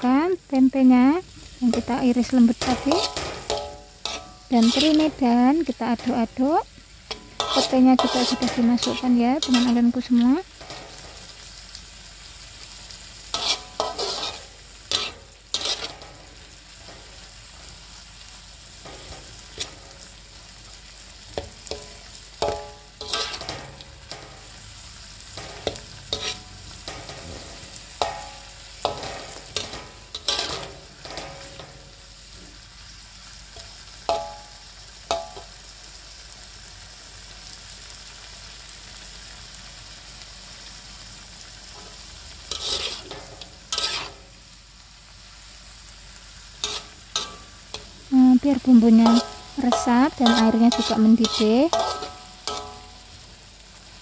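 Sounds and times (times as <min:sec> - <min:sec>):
low sizzle: 0:00.0 - 0:54.0
metal spatula scraping a wok: 0:01.6 - 0:11.5, 0:12.9 - 0:20.5, 0:21.3 - 0:32.6, 0:33.6 - 0:35.5, 0:41.7 - 0:44.4, 0:46.6 - 0:53.3.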